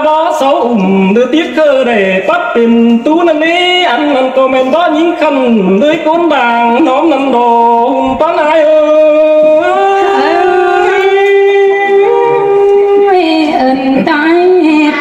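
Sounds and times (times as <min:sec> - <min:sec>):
person singing unaccompanied: 0:07.4 - 0:14.1.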